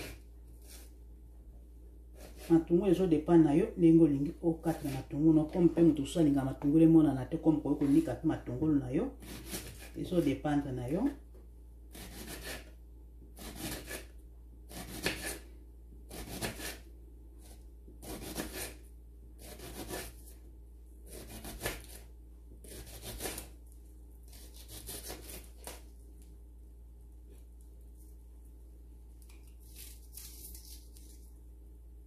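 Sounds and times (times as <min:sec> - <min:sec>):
knife slicing onion on board: 0:02.2 - 0:02.7, 0:09.2 - 0:10.3, 0:11.9 - 0:12.7, 0:13.4 - 0:15.5, 0:16.1 - 0:16.8, 0:17.4 - 0:18.8, 0:19.4 - 0:20.4, 0:21.1 - 0:23.6, 0:24.3 - 0:25.8.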